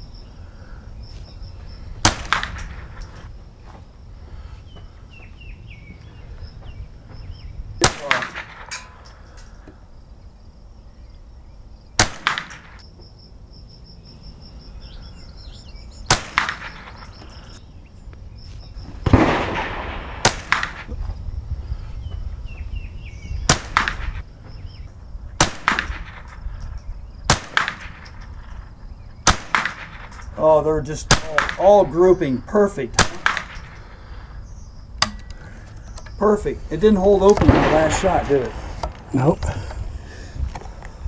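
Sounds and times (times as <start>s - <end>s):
rifle shots: 2.0s - 3.0s, 7.8s - 9.0s, 12.0s - 12.8s, 16.1s - 17.1s, 19.0s - 21.0s, 23.5s - 24.2s, 25.4s - 26.4s, 27.3s - 28.3s, 29.2s - 30.3s, 31.1s - 31.8s, 33.0s - 33.8s, 36.4s - 39.3s
louder longer gunshot report: 19.0s - 20.9s, 37.3s - 39.0s.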